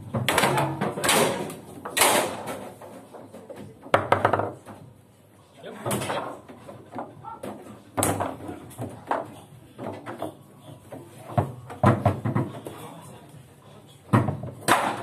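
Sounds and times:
foosball ball clacking: 0.0 - 4.8, 6.0 - 12.8
foosball rods banging: 0.0 - 4.9, 5.8 - 12.8, 14.1 - 15.0.

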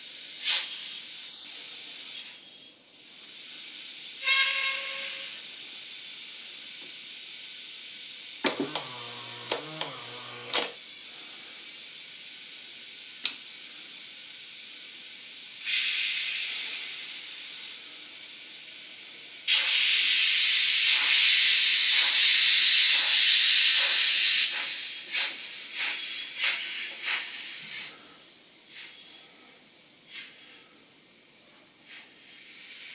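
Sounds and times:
steam hissing: 0.0 - 32.9
steam whistle: 4.2 - 5.5
click: 8.4 - 10.7, 13.2 - 13.4.

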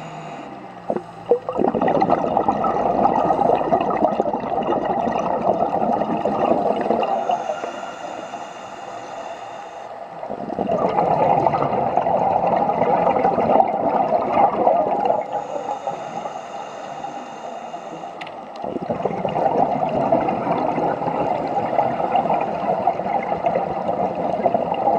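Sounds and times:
regulator inhalation hiss: 0.0 - 1.3, 7.1 - 10.2, 15.2 - 18.3
underwater bubbling exhalation: 0.0 - 8.2, 10.2 - 16.3, 18.6 - 24.9.

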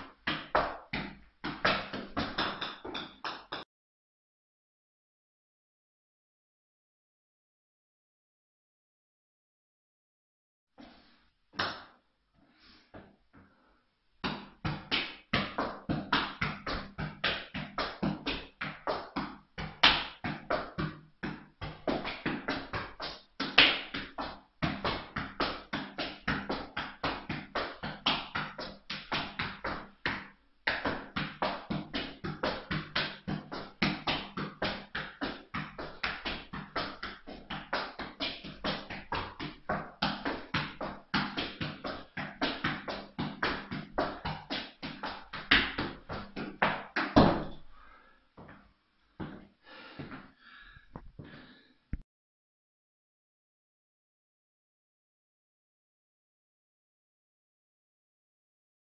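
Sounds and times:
background music with fast beat: 0.0 - 3.6.

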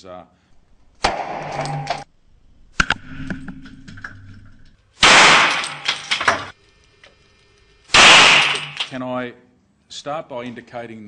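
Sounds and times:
faint hum: 0.4 - 10.3
pistol shot: 1.0 - 2.0, 5.0 - 6.5, 7.9 - 8.9
sharp clicks: 5.1 - 9.0.

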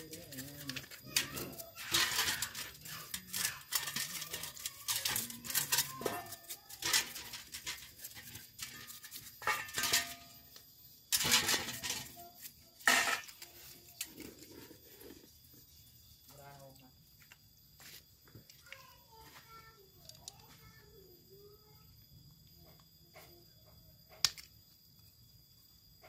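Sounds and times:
metal parts clicking against a bowl: 0.0 - 14.5
brush scrubbing metal parts: 0.0 - 15.0.

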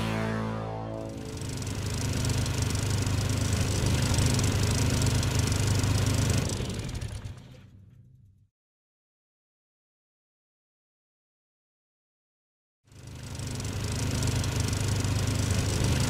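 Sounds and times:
snowmobile engine running: 0.0 - 7.5, 13.3 - 16.0.

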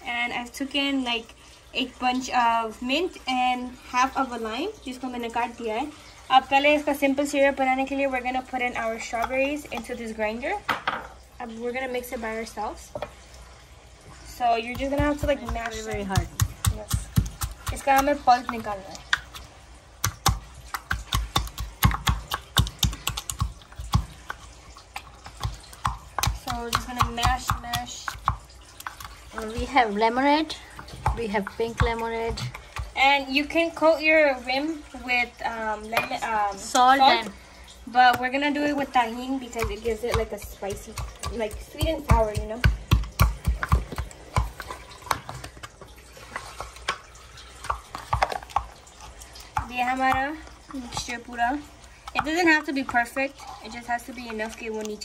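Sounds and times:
wooden pestle pounding in mortar: 14.7 - 19.4, 20.0 - 24.4, 25.3 - 30.0, 30.8 - 33.3, 39.3 - 45.7.

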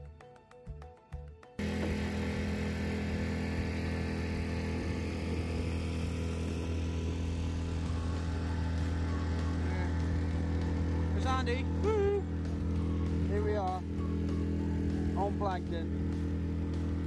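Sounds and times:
outboard motor humming: 1.6 - 17.0.

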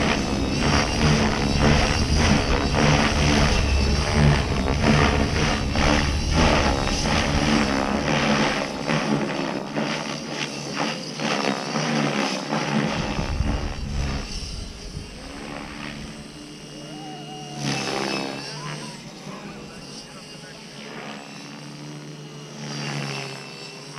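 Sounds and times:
drivetrain whining: 0.0 - 9.8
helicopter rotor whooshing chop: 0.0 - 23.9.

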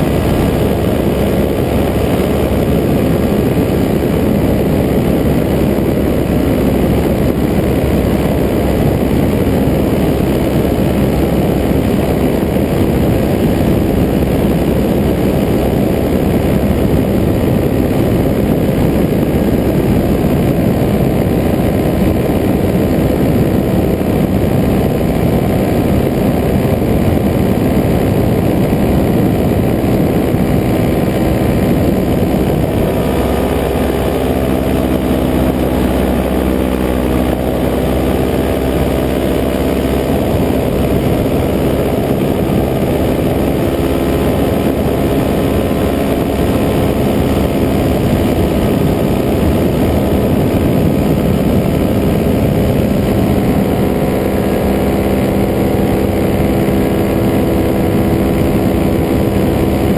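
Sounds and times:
paramotor engine drone: 0.0 - 59.9.

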